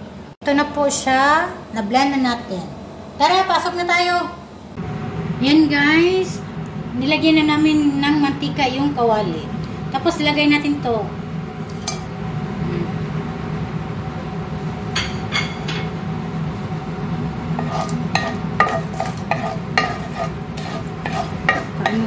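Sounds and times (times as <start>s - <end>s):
wooden spatula scraping pan: 17.6s - 22.0s.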